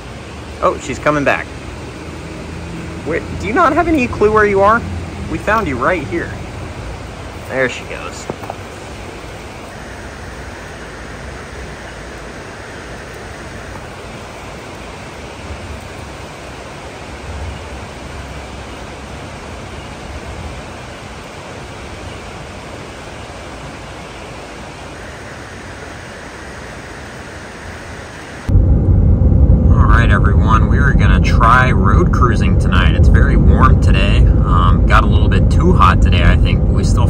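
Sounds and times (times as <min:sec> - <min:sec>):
heavy vehicles passing: 0:00.0 - 0:14.3, 0:28.5 - 0:37.0
highway traffic roar: 0:00.0 - 0:37.0.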